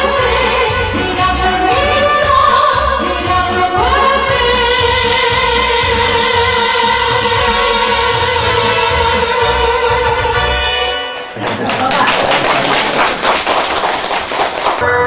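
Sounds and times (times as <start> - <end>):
woman singing: 0.0 - 10.5.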